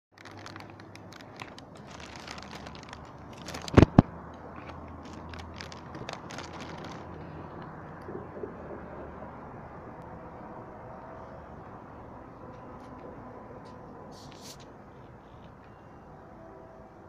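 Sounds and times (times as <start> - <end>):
low steady rumble: 0.2 - 15.4.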